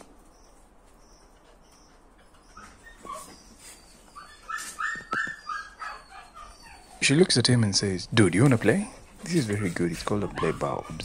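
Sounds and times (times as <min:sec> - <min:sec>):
dog whimpering: 0:02.2 - 0:07.3, 0:08.8 - 0:11.0.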